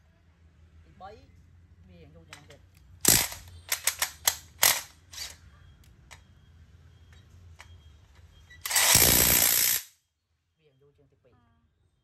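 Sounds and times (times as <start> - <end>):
impact wrench bursts: 3.0 - 5.4, 8.6 - 10.0.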